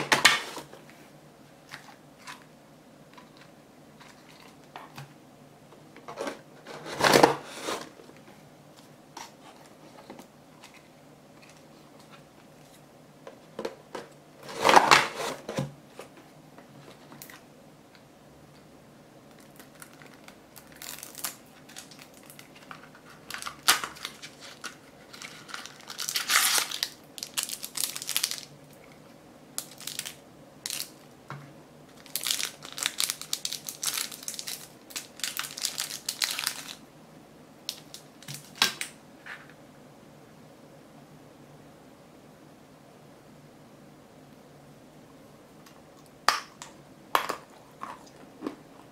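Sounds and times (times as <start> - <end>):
paper and card crinkling: 19.3 - 28.5, 31.9 - 36.8.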